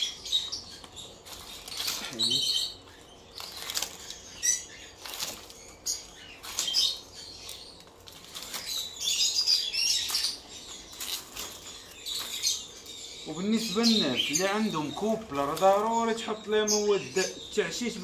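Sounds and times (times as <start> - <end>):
lovebirds chirping: 0.0 - 18.0
dry palm leaf tearing: 0.8 - 2.7, 3.3 - 12.6, 14.4 - 16.2.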